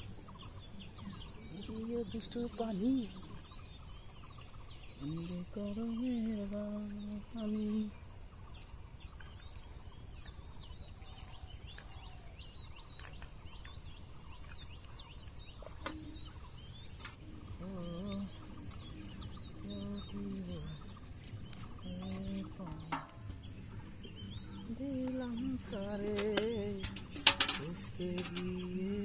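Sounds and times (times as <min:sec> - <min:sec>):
small birds chirping: 0:00.0 - 0:29.0.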